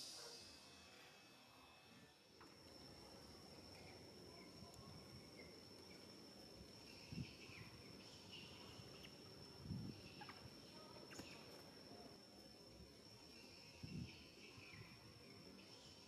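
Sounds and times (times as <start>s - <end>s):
high-pitched insect drone: 0.0s - 4.2s
faint insect chirps: 0.0s - 16.0s.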